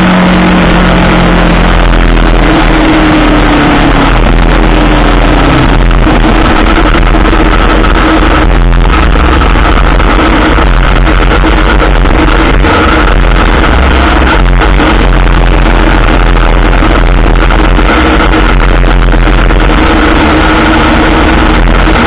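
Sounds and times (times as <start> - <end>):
distorted wind noise: 0.0 - 22.0
motorcycle engine running low: 0.0 - 22.0.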